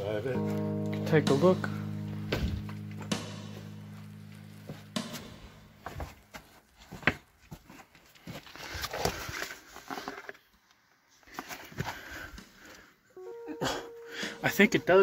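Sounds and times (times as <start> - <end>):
footsteps on loose rocks: 5.8 - 10.3.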